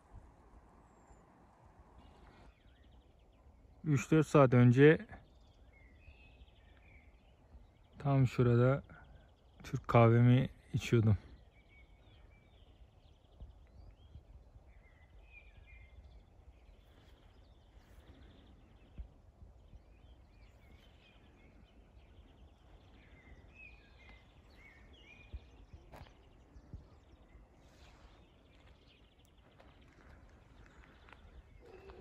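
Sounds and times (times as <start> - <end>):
faint bird chirps: 0.0 - 32.0
wind rumble on microphone: 12.5 - 32.0.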